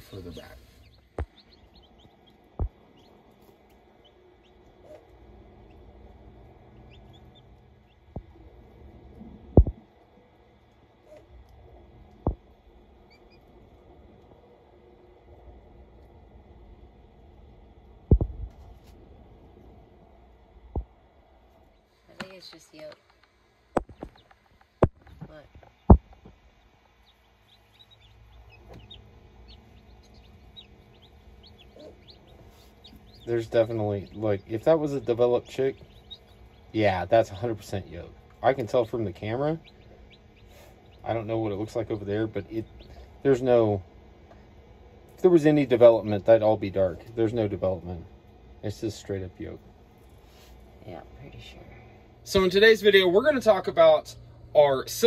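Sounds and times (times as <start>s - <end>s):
chicks peeping: 0.0s - 9.8s, 11.0s - 14.8s, 23.8s - 44.5s.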